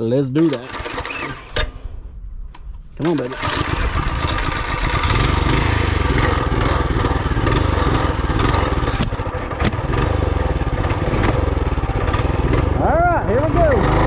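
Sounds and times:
mini bike engine running: 3.4 - 14.0.

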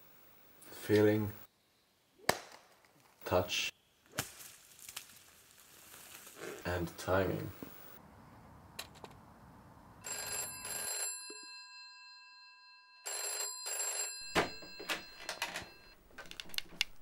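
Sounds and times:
rotary telephone ringing: 10.0 - 16.0
handset clattering knocks: 14.2 - 15.8.

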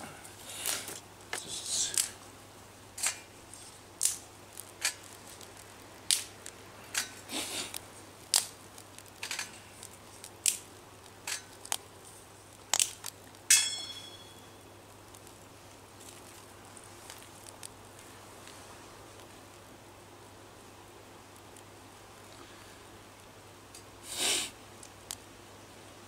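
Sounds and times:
twigs crackling in stove: 0.0 - 22.3, 24.7 - 25.7
metallic clink: 13.5 - 14.6.

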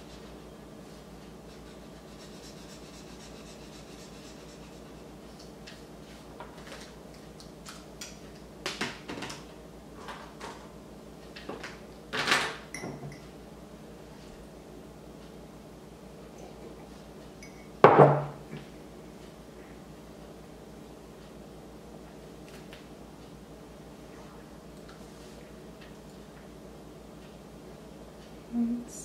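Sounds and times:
low room hum: 0.0 - 29.0
mug knocking on table: 17.8 - 18.4.

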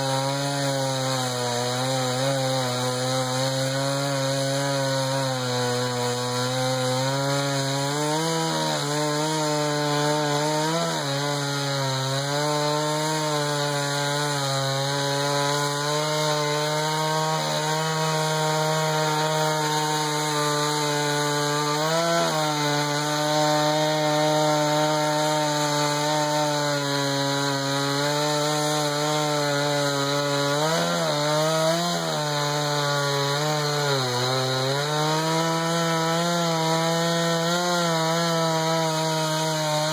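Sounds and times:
chainsaw cutting wood at high revs: 0.0 - 39.9.

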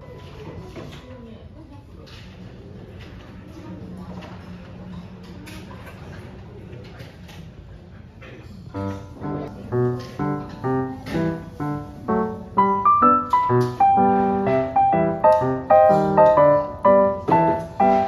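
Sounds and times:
keyboard chords: 8.8 - 18.0
keyboard melody: 8.8 - 18.0.

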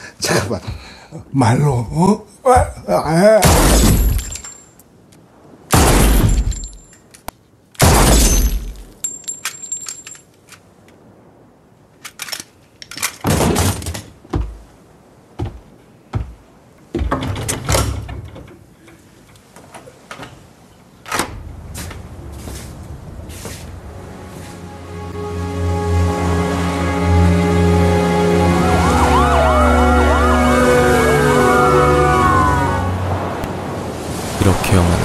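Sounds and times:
bangs knocks and crashes: 15.4 - 18.5
low drone: 21.3 - 33.7.

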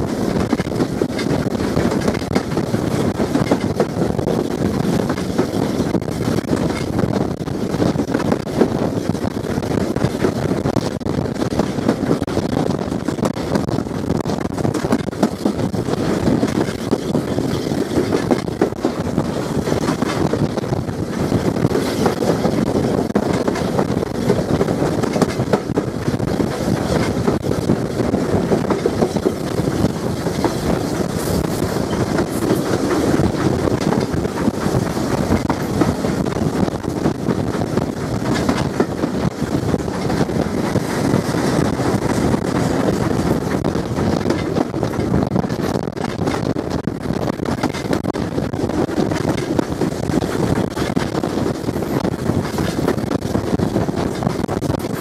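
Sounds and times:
steam locomotive running: 0.0 - 55.0
wheels rushing on rails: 0.0 - 55.0
wind buffeting microphone: 0.0 - 55.0.

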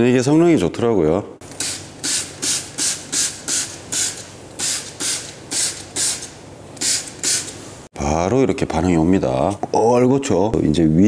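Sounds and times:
spray bottle hissing squirts: 1.5 - 7.7.

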